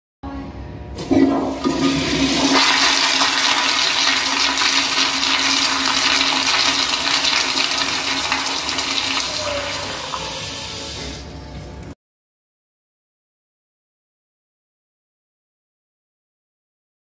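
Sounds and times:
low steady hum: 0.2s - 6.0s
toilet flushing: 1.0s - 11.3s.

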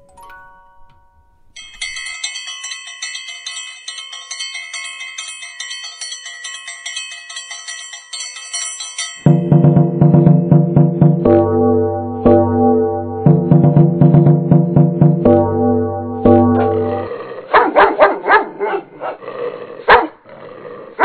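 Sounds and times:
chiming bell-like tune: 0.0s - 10.2s.

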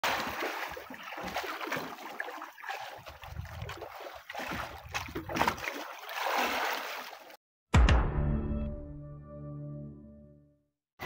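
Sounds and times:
water sloshing against boat: 0.0s - 7.4s.

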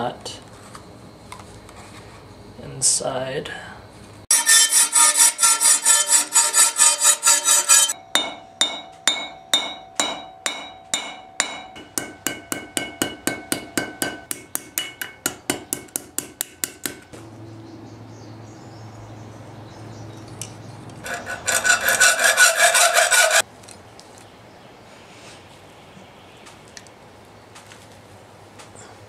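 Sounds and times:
hammer striking steel strip: 4.3s - 17.1s, 21.0s - 23.4s
hammer on steel rod over anvil: 4.3s - 17.2s.

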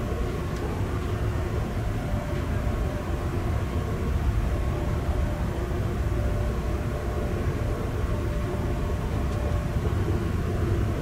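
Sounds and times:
faint steady hum: 0.0s - 11.0s
train rumbling on track: 0.0s - 11.0s.

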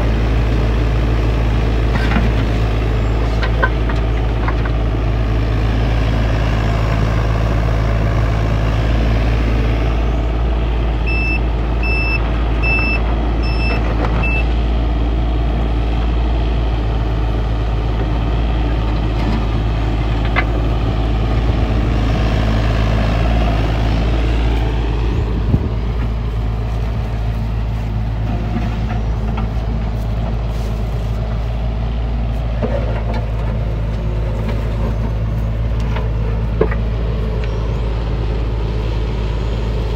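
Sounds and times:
excavator diesel engine running: 0.0s - 39.9s
alarm beeping: 11.0s - 14.5s.

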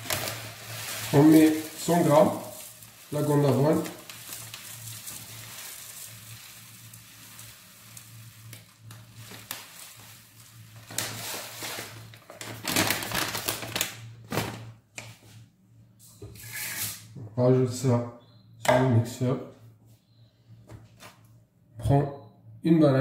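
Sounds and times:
oat flakes pouring into cup: 0.0s - 13.8s
packet crinkling: 0.0s - 14.7s.

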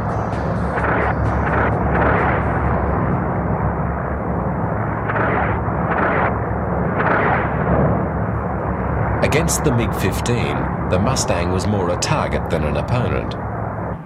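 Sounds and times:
aircraft engine drone: 0.0s - 14.0s
explosions: 0.7s - 2.8s, 5.0s - 8.2s.

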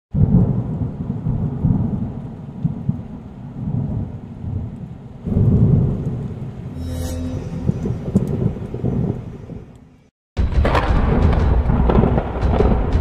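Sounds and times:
steady rain: 0.1s - 6.7s
thunder rumbling: 0.2s - 6.8s, 7.5s - 10.0s, 10.6s - 13.0s.

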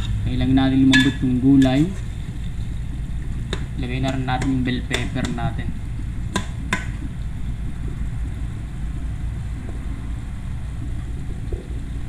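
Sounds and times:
low rumble: 5.5s - 12.0s.

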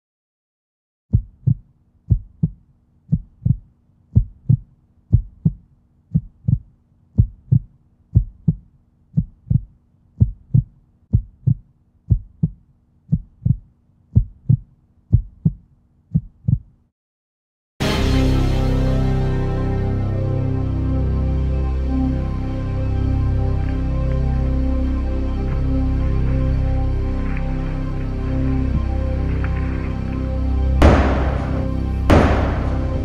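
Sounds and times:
heartbeat thumps: 1.1s - 16.8s, 30.8s - 33.0s
faint low drone: 17.8s - 33.0s.

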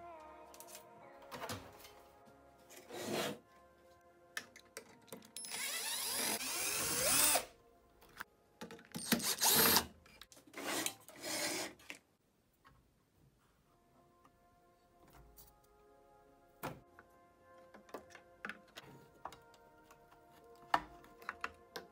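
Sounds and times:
electric screwdriver running: 5.5s - 7.5s, 9.2s - 9.8s.

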